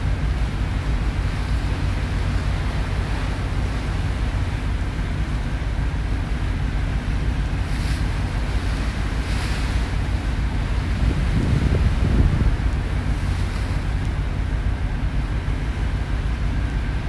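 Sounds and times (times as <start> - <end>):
boat engine rumble: 0.0 - 17.0
sea rushing along hull: 0.0 - 17.0
wind buffeting microphone: 7.8 - 17.0.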